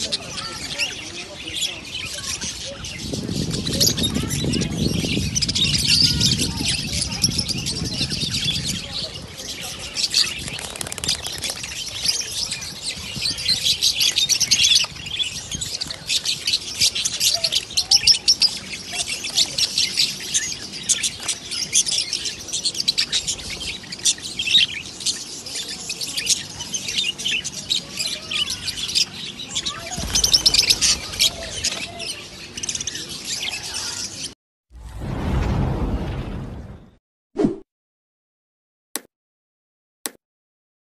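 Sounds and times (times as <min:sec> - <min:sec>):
budgerigars chirping and chattering: 0:00.0 - 0:34.3.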